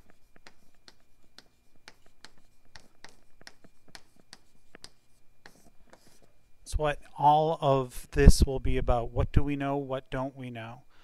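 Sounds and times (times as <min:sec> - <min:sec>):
chalk tapping and scraping on chalkboard: 0:00.0 - 0:06.5.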